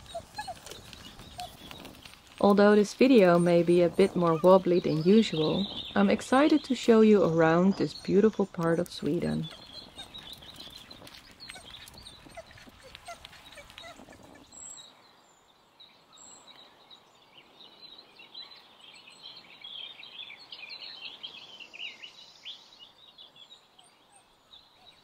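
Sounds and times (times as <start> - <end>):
bicycle rolling over gravel: 0.0 - 14.6
small birds chirping: 0.0 - 25.0.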